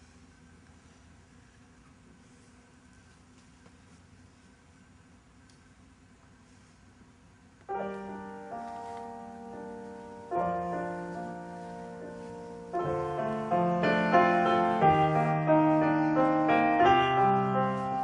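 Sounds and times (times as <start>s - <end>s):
slow piano chords: 7.6s - 18.0s.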